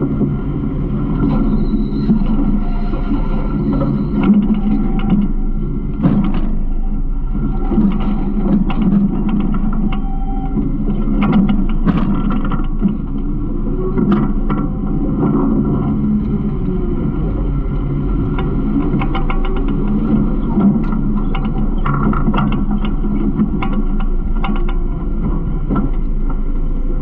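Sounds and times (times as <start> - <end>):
knocks and rattles from truck body: 6.0 - 6.6.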